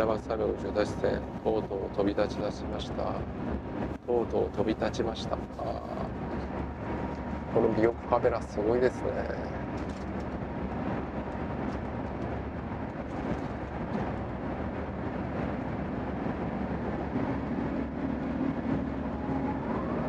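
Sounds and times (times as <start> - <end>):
aircraft cabin engine drone: 0.0 - 20.0.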